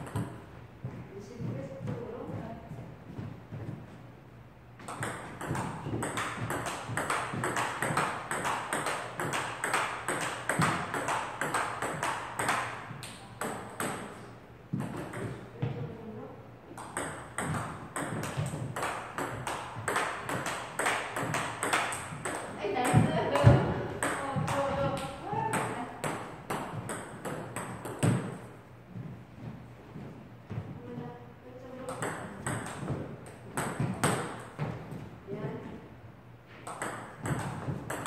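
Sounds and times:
table tennis ball hits: 0.0s - 0.4s, 4.8s - 15.8s, 16.7s - 28.5s, 31.8s - 34.8s, 36.6s - 38.0s.

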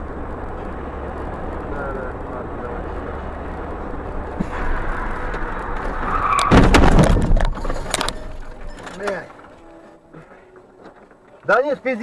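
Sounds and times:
car road noise: 0.0s - 12.0s
tyres skidding: 0.0s - 12.0s
car crash: 4.4s - 9.6s
sharp knocks: 6.0s - 7.8s.

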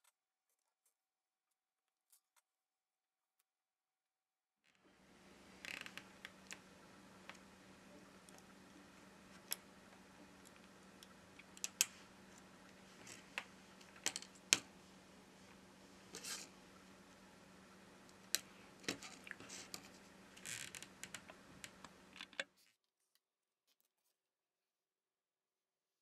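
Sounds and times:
faint steady hum: 4.7s - 22.6s
small clicks and taps: 9.3s - 14.7s, 20.7s - 22.5s.

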